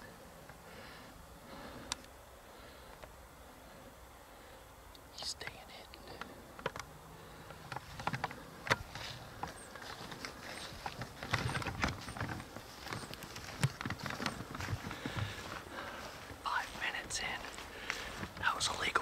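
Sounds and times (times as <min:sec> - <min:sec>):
twigs crackling: 0:06.2 - 0:19.0
footsteps crunching through dry leaves: 0:08.8 - 0:19.0.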